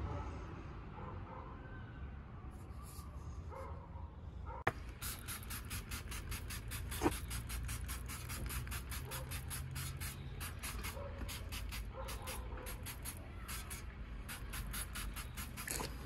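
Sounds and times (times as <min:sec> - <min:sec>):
spray bottle hissing spurts: 0:04.8 - 0:16.0.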